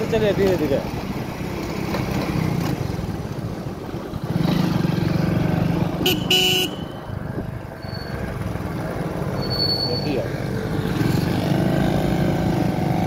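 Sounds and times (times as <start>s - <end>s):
road and wind noise: 0.0s - 13.0s
vehicle horn honking: 6.0s - 7.0s.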